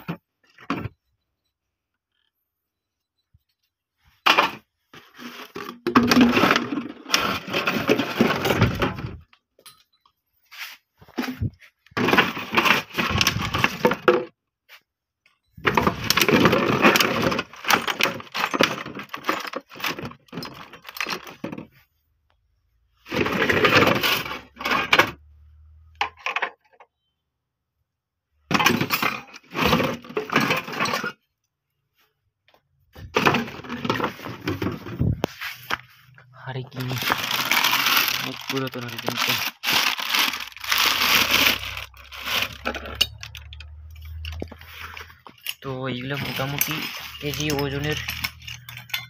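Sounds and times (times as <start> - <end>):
plastic bottles crackling: 4.3 - 9.4, 11.2 - 14.3, 15.6 - 21.8, 23.0 - 25.0, 33.0 - 35.8, 36.4 - 48.8.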